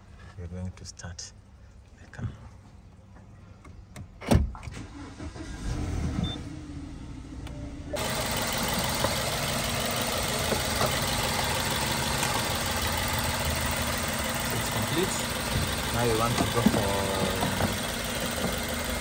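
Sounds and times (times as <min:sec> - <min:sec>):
car engine cranking and idling: 0:01.7 - 0:19.0.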